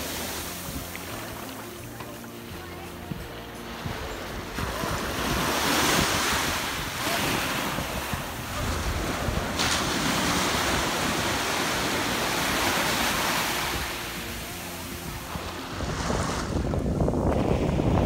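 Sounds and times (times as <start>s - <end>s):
small waves breaking on shore: 0.0s - 18.0s
wind buffeting microphone: 3.0s - 13.0s, 13.6s - 18.0s.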